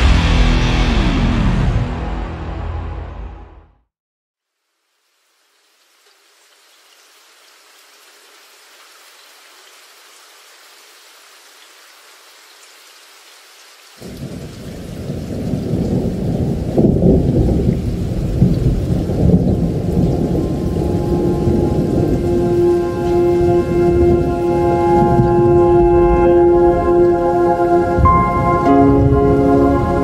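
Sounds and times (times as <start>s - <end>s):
rain: 4.4s - 30.0s
thunder rumble: 14.0s - 30.0s.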